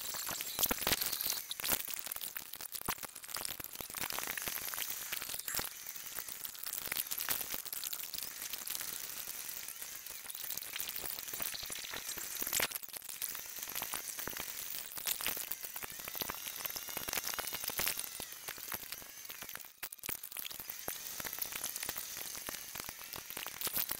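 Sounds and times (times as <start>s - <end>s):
warbling squeaks: 0.0s - 2.3s.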